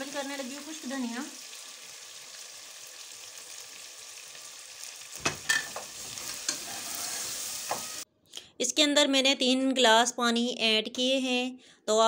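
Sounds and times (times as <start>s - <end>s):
pot sizzling: 0.0s - 8.1s
metal spoon scraping pot: 5.5s - 8.0s.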